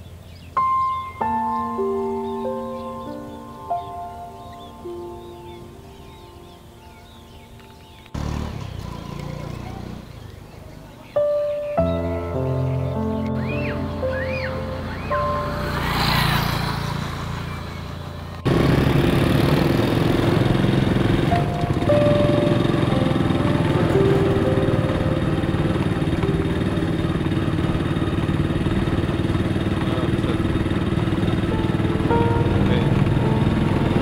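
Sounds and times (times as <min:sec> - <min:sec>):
soft music: 0:00.0 - 0:08.2, 0:10.4 - 0:18.5, 0:20.0 - 0:34.0
wind and road noise: 0:00.0 - 0:34.0
motorbike engine running: 0:08.2 - 0:10.4, 0:13.4 - 0:34.0.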